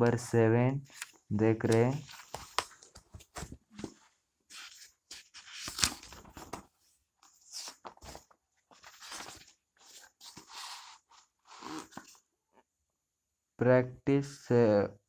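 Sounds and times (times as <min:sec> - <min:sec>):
book pages turning and rustling: 0:00.9 - 0:12.2.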